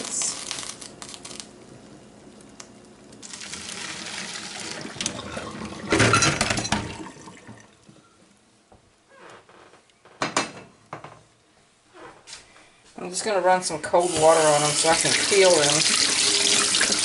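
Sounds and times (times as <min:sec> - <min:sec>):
hot water pouring and splashing: 0:03.2 - 0:06.1, 0:06.8 - 0:07.8, 0:14.0 - 0:17.0.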